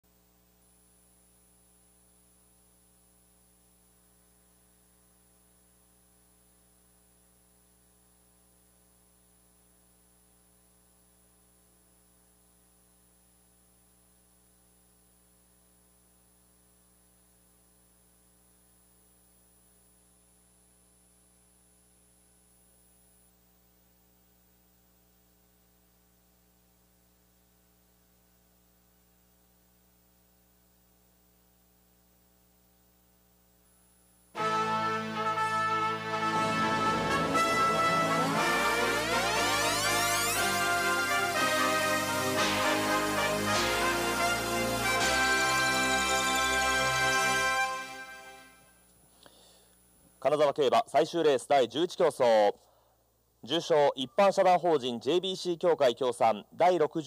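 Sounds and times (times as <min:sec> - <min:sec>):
faint electrical hum: 0:00.0 - 0:57.0
thin high whine: 0:28.4 - 0:50.7.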